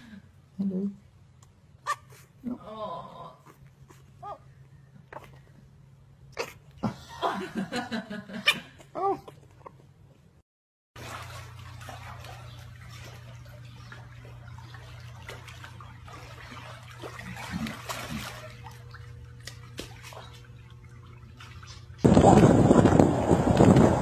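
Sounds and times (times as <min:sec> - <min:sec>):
low hum: 0:11.0 - 0:24.0
water splashing and lapping: 0:11.0 - 0:24.0.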